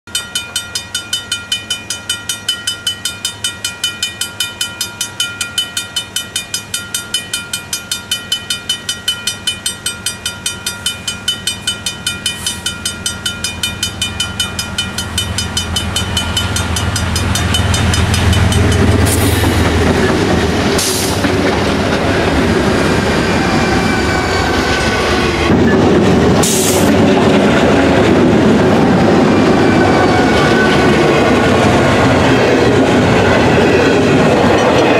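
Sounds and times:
crossing bell ringing: 0.1 - 20.8, 21.4 - 26.3, 27.9 - 34.9
train wheel noise: 0.1 - 34.9
diesel locomotive engine rumble: 0.4 - 34.9.

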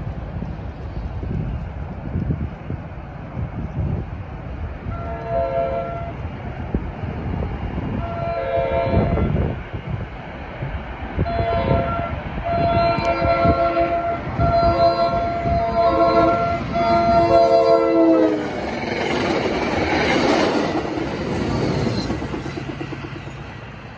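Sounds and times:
train horn blasts: 4.9 - 6.2, 8.0 - 9.5, 11.2 - 18.5.

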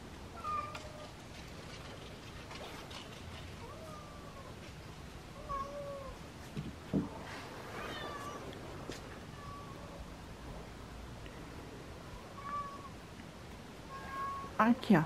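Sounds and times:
cat meowing: 0.4 - 1.0, 5.4 - 6.2, 7.7 - 8.6, 9.3 - 10.0, 12.1 - 13.0, 13.9 - 14.6.

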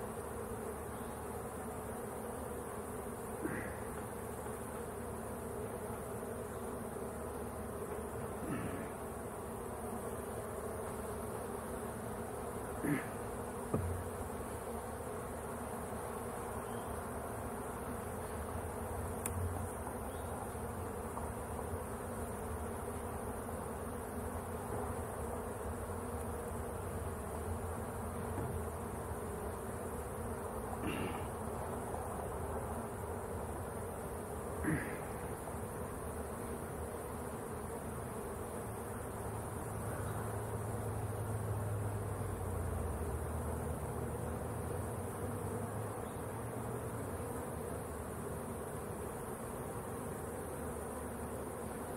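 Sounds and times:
honeybees buzzing: 0.0 - 51.9
sharp knocks: 13.7 - 14.1.

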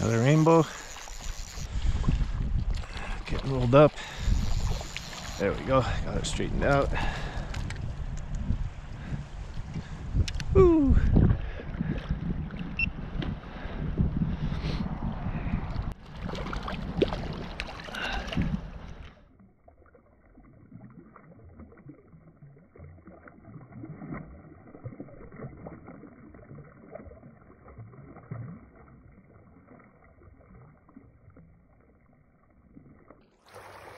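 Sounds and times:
water sloshing and splashing: 0.0 - 13.9, 15.6 - 33.9
wind rumbling on microphone: 0.0 - 19.2.

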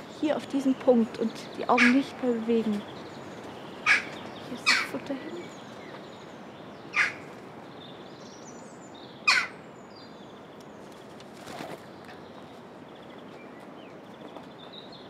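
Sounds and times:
jackdaw calling: 0.0 - 7.7, 9.2 - 9.7
faint high bird chirping: 0.0 - 15.0.

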